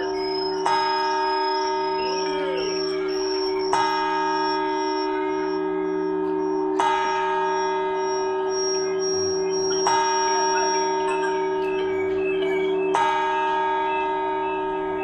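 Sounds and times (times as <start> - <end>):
clock bell striking: 0.0 - 15.0.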